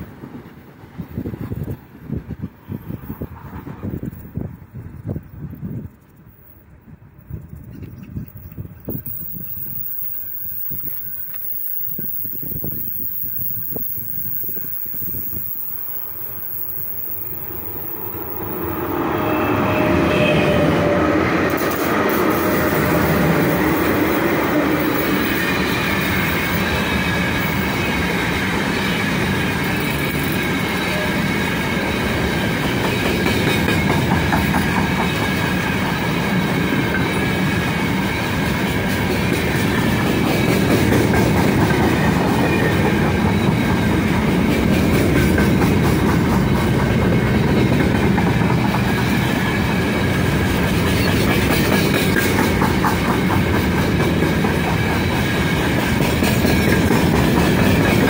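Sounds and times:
wheels clicking over rail joints: 0:00.0 - 0:19.4, 0:21.5 - 0:58.0
electric locomotives passing: 0:00.0 - 0:58.0
freight wagons rolling past: 0:00.0 - 0:58.0.

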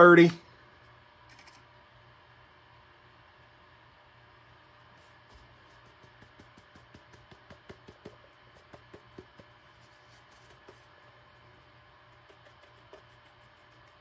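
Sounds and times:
paper towel tapping plastic: 0:05.4 - 0:09.8, 0:10.4 - 0:10.9.

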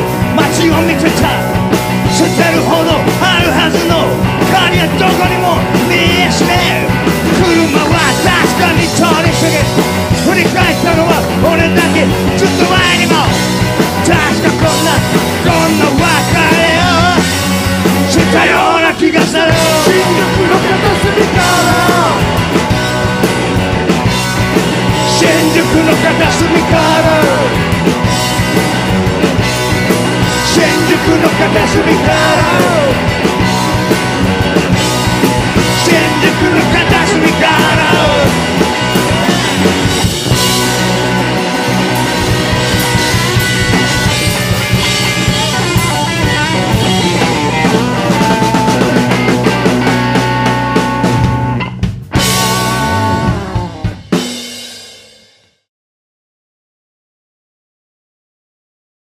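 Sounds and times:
man singing: 0:00.0 - 0:22.4, 0:24.9 - 0:27.7, 0:30.2 - 0:33.3, 0:35.1 - 0:39.7, 0:44.9 - 0:50.0
rock band playing: 0:00.0 - 0:55.6.

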